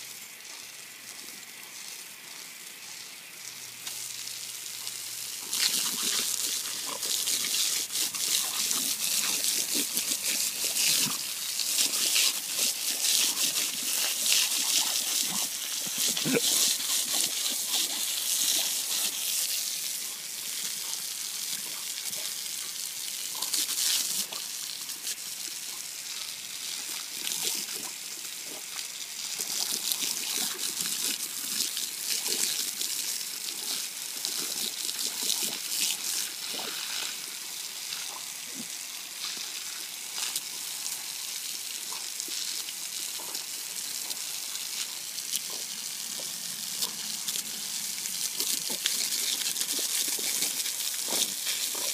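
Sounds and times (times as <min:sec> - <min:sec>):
hose water splashing on concrete: 0:00.0 - 0:51.9
dog biting water stream: 0:05.4 - 0:19.8, 0:48.3 - 0:51.9.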